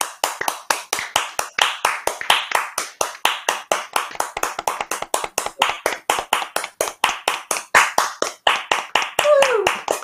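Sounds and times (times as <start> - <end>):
people clapping over video call: 0.0 - 10.0.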